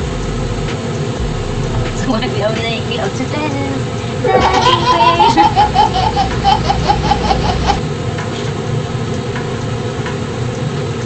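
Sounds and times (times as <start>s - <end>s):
woman laughing: 4.2s - 7.8s.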